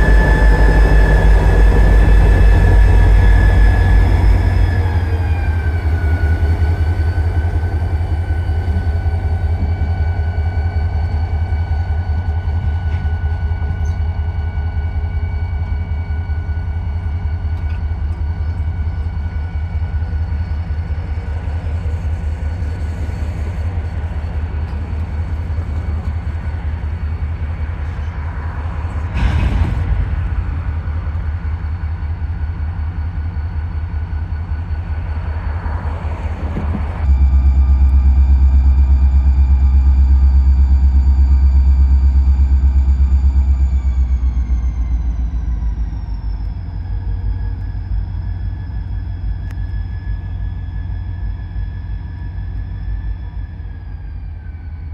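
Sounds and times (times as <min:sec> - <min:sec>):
rush of noise: 0:00.0 - 0:09.6
diesel locomotive engine rumbling: 0:00.0 - 0:54.9
faint whine: 0:00.0 - 0:54.9.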